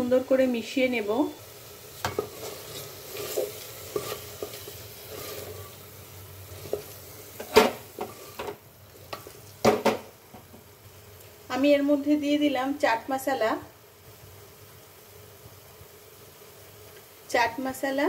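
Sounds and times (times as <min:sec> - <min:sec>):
paste sizzling in oil: 0:00.0 - 0:18.0
spatula scraping a pot: 0:02.0 - 0:09.3.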